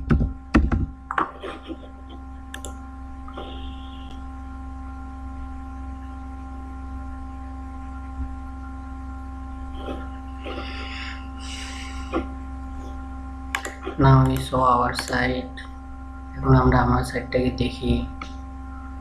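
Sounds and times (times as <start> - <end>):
high whine tones: 0.0 - 19.0
steady electrical hum: 0.0 - 19.0
mouse click: 2.5 - 3.6.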